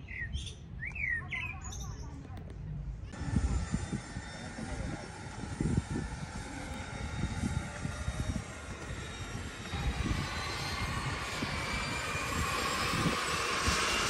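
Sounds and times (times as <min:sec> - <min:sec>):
wind gusting on microphone: 0:00.0 - 0:14.0
aircraft engine drone: 0:03.1 - 0:14.0.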